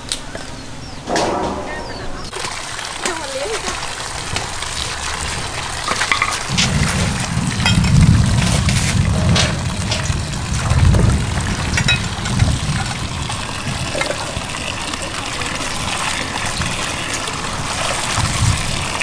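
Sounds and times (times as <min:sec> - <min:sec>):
water splashing and sloshing: 0:01.1 - 0:19.0
tap water pouring into metal basin: 0:02.3 - 0:19.0
low engine rumble: 0:04.8 - 0:19.0.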